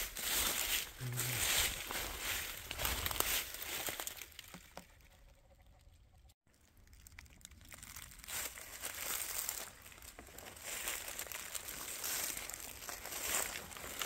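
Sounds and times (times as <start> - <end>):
footsteps crunching through dry leaves: 0.0 - 4.4, 7.6 - 14.0.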